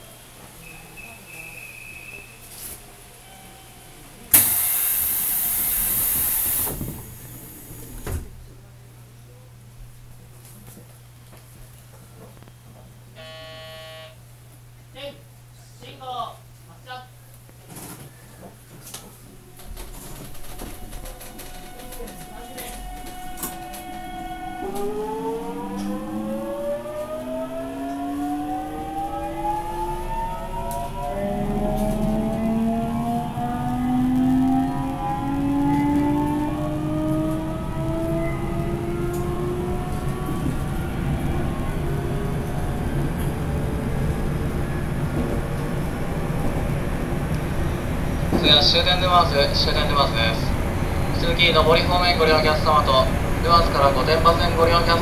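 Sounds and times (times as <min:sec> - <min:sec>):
electric train motor whine: 0:03.3 - 0:08.3, 0:13.2 - 0:14.2, 0:19.6 - 0:49.0
compressed air hiss: 0:04.3 - 0:07.8.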